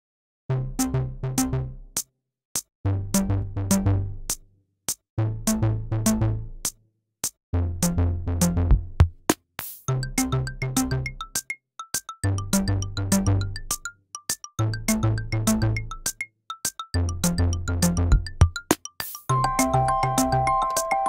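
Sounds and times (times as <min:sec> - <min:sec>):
electronic music: 0:17.0 - 0:21.0.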